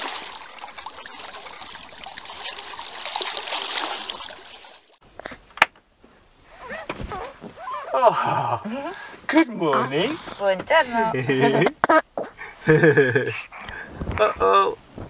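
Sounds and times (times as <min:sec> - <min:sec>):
water trickling and splashing: 0:00.0 - 0:05.0.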